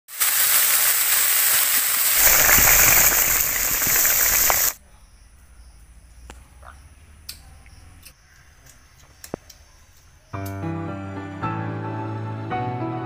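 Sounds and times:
fish sizzling in hot oil: 0.1s - 4.8s.

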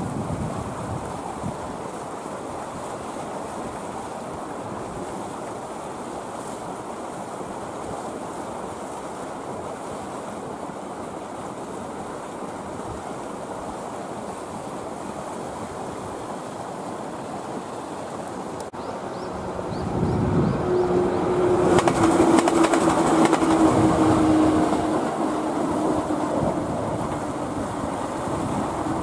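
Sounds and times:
wind rushing on microphone: 0.0s - 1.8s, 19.0s - 29.0s.

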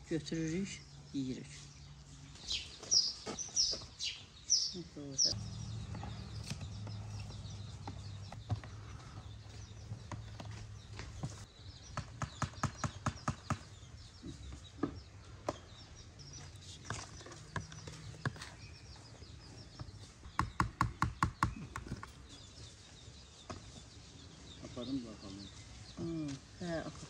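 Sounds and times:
low steady hum: 5.3s - 11.4s.

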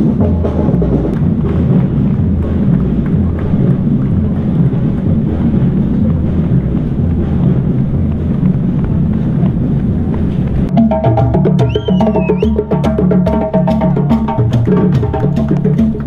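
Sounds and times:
wind buffeting camera: 1.0s - 10.7s.

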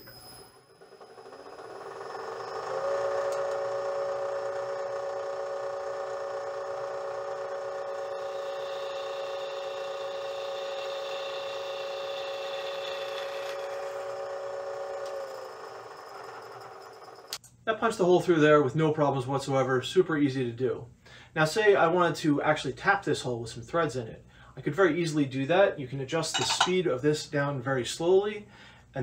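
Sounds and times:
milling machine whining: 0.0s - 17.4s.

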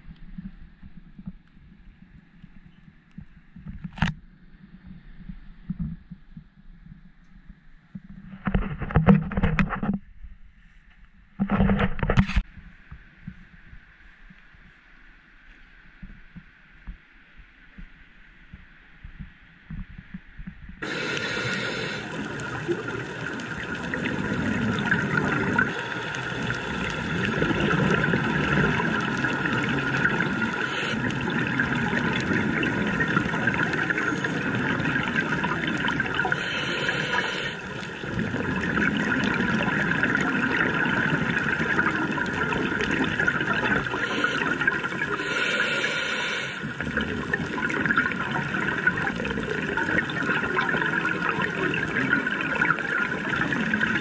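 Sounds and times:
underwater bubbling and rushing water: 15.9s - 54.0s
hissing surges of bubbles: 20.8s - 54.0s.

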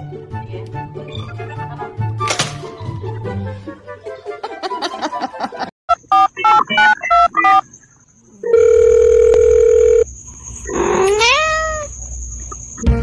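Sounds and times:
telephone keypad beeps: 6.0s - 7.6s
steady phone tone: 8.4s - 10.1s
cat meowing: 10.7s - 11.9s.

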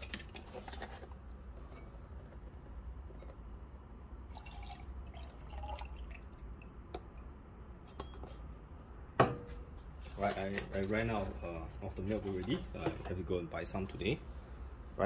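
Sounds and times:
milk pouring into jug: 4.3s - 6.6s.

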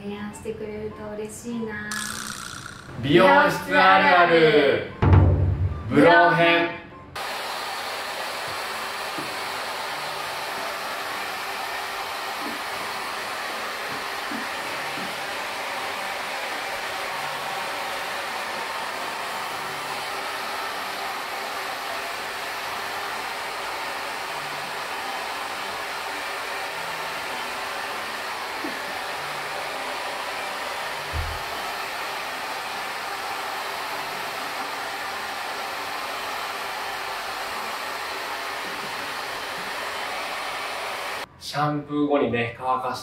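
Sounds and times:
hair dryer blowing air: 7.2s - 41.3s
short low thump: 31.1s - 31.4s.

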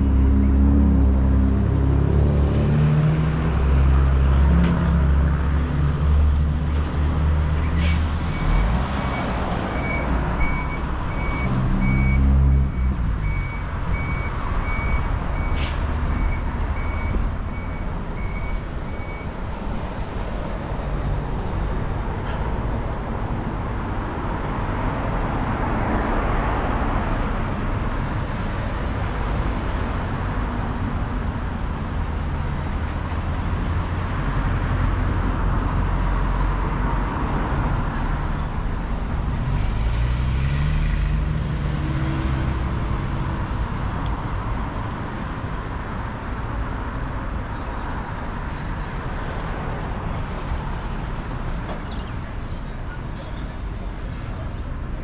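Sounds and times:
street traffic: 0.0s - 55.0s.

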